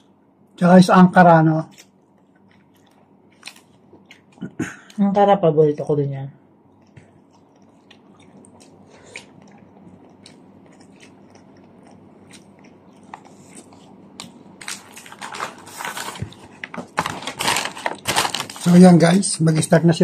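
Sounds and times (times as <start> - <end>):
person chewing: 1.7 - 5.0, 6.6 - 16.7
paper wrapper rustling: 14.6 - 19.2.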